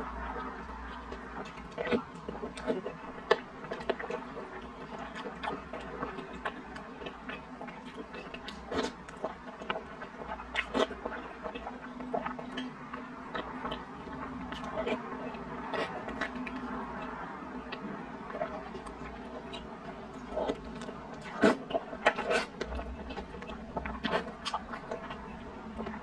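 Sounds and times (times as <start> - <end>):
wet chewing: 0.0 - 26.0
slurping: 14.5 - 26.0.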